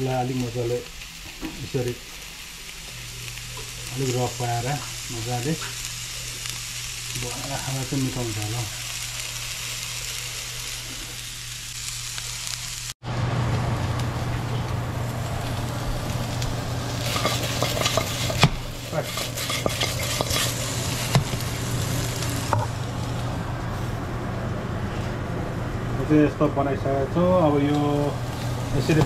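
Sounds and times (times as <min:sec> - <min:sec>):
meat sizzling in a hot pan: 0:00.0 - 0:13.0, 0:13.9 - 0:23.2, 0:27.4 - 0:29.0
sharp knocks in a pan: 0:17.2 - 0:20.4.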